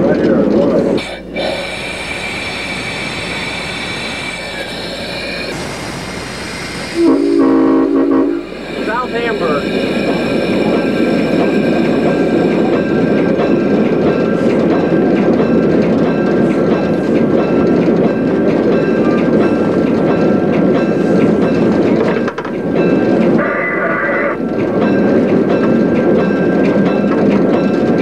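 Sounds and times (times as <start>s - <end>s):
diesel locomotive rumble: 0.0s - 28.0s.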